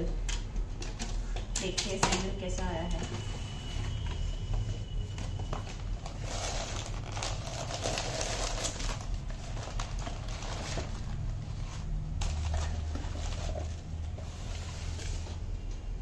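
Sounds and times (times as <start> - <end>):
tissue paper rustling: 3.3 - 15.4.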